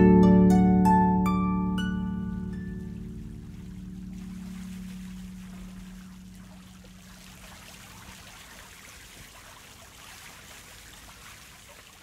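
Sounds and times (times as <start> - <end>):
fountain water splashing: 2.4 - 12.0.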